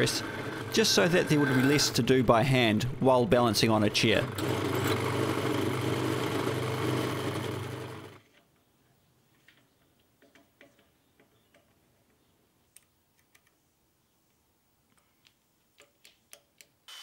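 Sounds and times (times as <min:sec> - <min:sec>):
drill press drilling metal: 0:00.0 - 0:01.9, 0:04.3 - 0:08.2.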